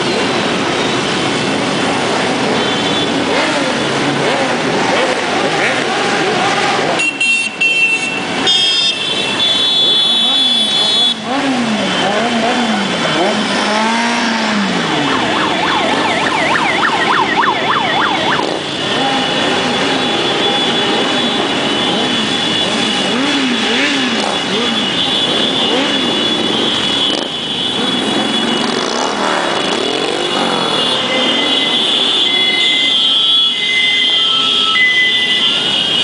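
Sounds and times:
motorcycle engines revving: 0.0s - 36.0s
warbling siren-like tone: 14.1s - 20.9s.

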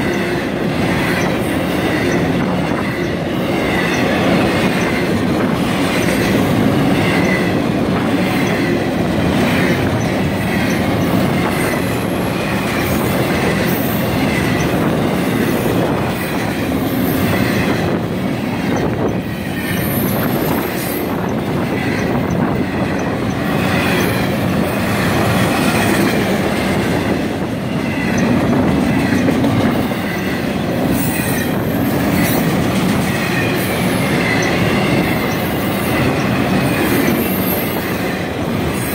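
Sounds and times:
freight train rumbling past: 0.0s - 38.9s
train wheel squeals: 0.0s - 38.9s.

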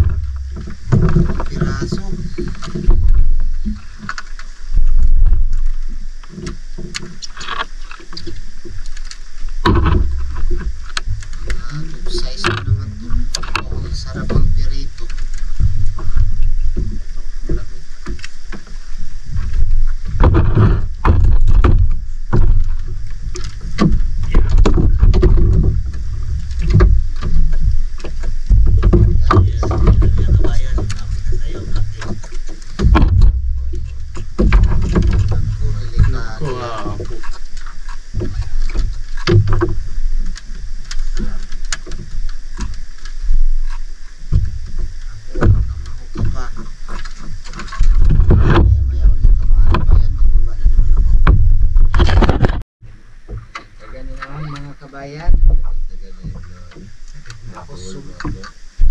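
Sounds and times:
irregular knocks: 0.0s - 3.8s, 9.6s - 11.5s, 20.1s - 37.3s
heavy low rumble: 0.0s - 6.3s, 9.4s - 41.6s, 43.2s - 46.9s, 47.8s - 53.1s
water splashing around boat: 0.0s - 58.9s.

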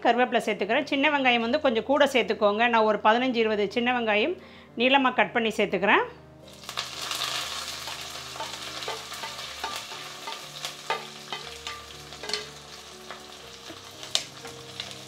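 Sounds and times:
shallots sizzling in oil: 6.4s - 15.0s
spatula scraping a pan: 6.7s - 15.0s.

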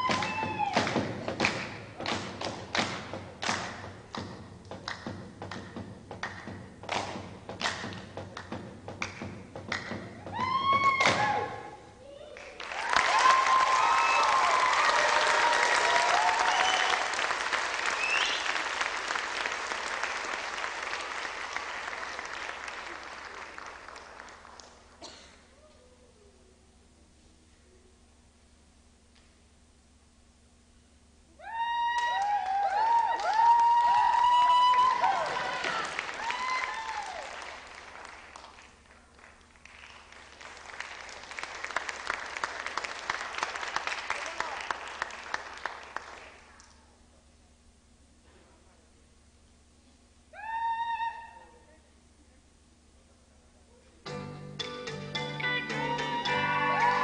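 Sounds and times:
whoops and whistles: 0.0s - 0.8s, 16.4s - 17.0s, 18.0s - 18.6s, 50.4s - 51.6s
crowd whooping: 0.0s - 1.0s, 10.3s - 18.7s, 31.4s - 37.5s, 55.5s - 57.0s
audience applauding: 12.4s - 25.0s, 32.0s - 46.6s, 55.9s - 57.0s.

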